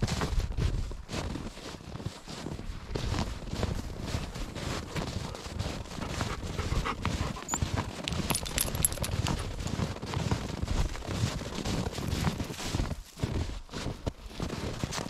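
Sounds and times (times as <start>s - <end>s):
rhythmic footsteps: 3.6s - 9.8s
dog panting: 4.3s - 9.6s.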